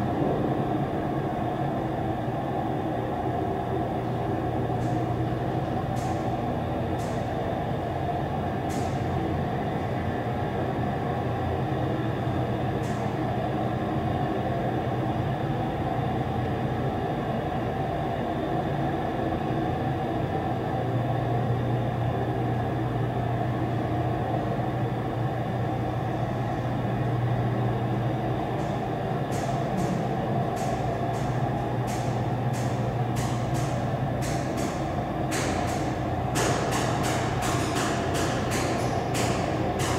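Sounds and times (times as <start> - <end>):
elevator hydraulic hum: 21.8 - 39.9
elevator sharp clicks: 28.6 - 39.9.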